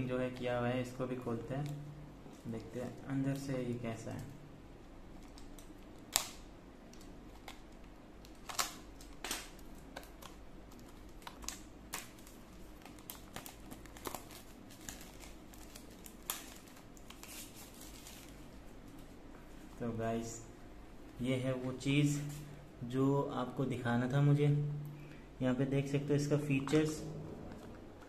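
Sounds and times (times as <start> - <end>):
shrink wrap crinkling: 5.1 - 19.9.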